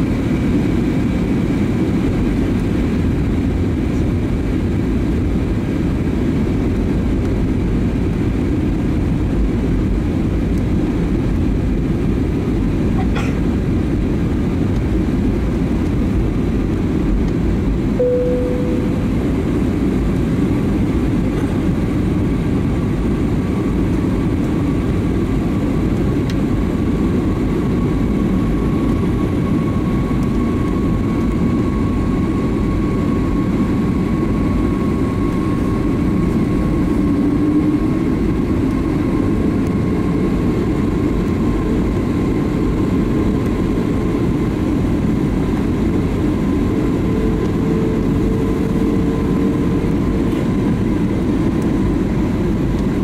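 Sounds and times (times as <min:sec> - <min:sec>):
airplane cabin engine roar: 0:00.0 - 0:53.0
faint steady whine: 0:16.6 - 0:53.0
short soft tone: 0:18.0 - 0:19.4.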